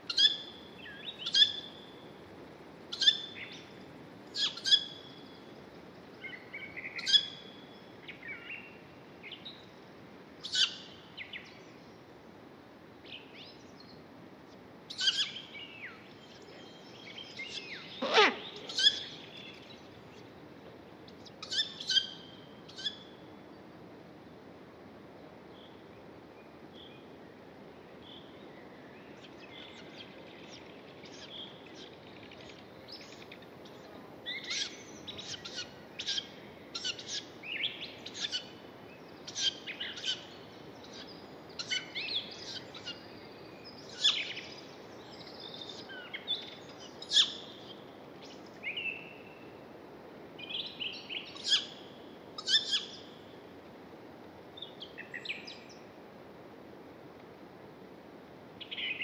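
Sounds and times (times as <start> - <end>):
faint steady hiss: 0.0 - 59.0.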